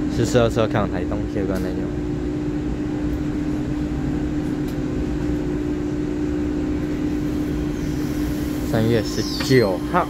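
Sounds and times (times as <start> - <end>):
electric train humming at rest: 0.0 - 10.0.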